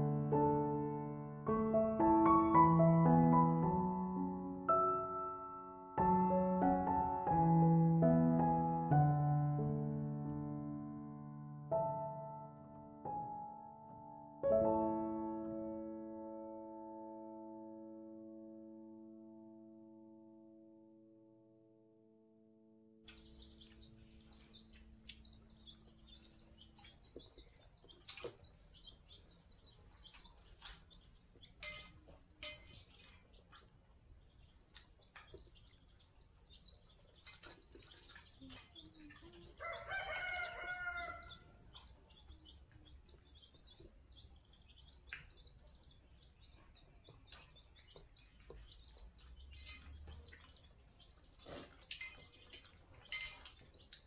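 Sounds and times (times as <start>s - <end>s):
dishes and cutlery clicking: 31.6s - 33.4s, 37.2s - 37.9s, 49.5s - 50.2s, 51.5s - 54.0s
rooster crowing: 39.6s - 41.6s.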